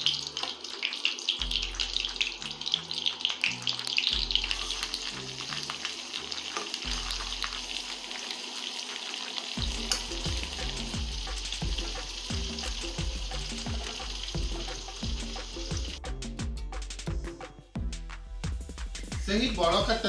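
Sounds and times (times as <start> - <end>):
vegetables sizzling in oil: 0.0 - 16.0
background music: 0.0 - 20.0
utensil clicking against pan: 9.8 - 10.3.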